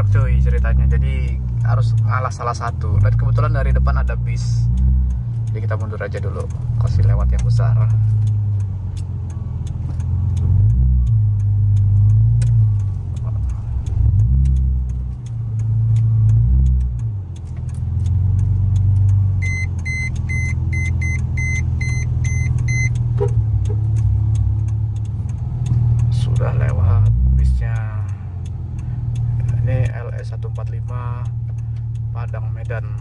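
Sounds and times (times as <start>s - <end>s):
car engine revving: 0.0s - 33.0s
short high beeps: 19.4s - 23.4s.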